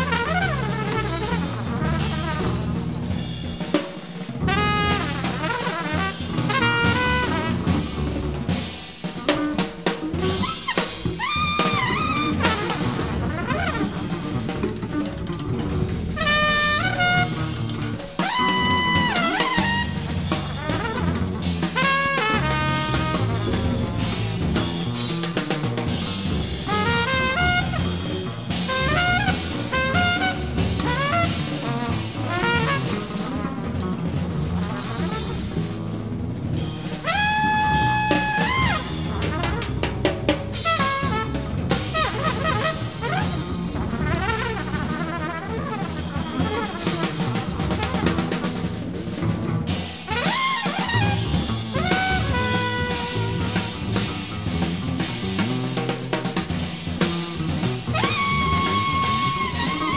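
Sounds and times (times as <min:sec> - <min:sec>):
trumpet playing: 0:00.0 - 0:02.6, 0:04.4 - 0:07.9, 0:10.3 - 0:24.4, 0:26.7 - 0:28.1, 0:28.7 - 0:33.7, 0:37.0 - 0:39.8, 0:40.6 - 0:48.5, 0:50.0 - 0:54.3, 0:57.9 - 0:59.9
bass: 0:00.0 - 0:59.9
drum kit: 0:00.0 - 0:59.9.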